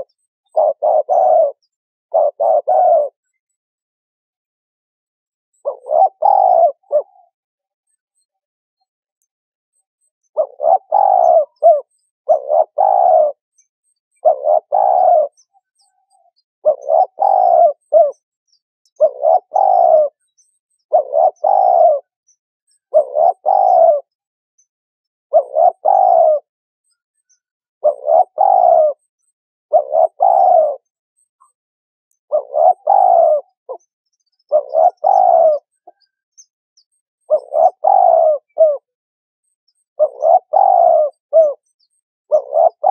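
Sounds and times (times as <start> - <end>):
dove cooing: 0.0 - 3.3, 5.6 - 7.4, 10.4 - 13.4, 14.2 - 18.2, 19.0 - 20.3, 20.9 - 22.1, 22.9 - 24.2, 25.3 - 26.5, 27.8 - 29.0, 29.7 - 30.9, 32.3 - 33.8, 34.4 - 36.1, 37.3 - 39.0, 40.0 - 41.7, 42.3 - 42.9.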